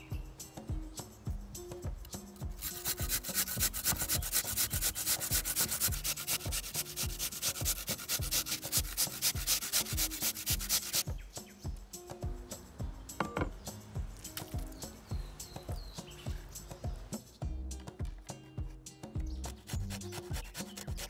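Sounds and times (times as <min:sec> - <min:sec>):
squash grating on metal grater: 0:02.6 - 0:11.0, 0:19.5 - 0:21.0.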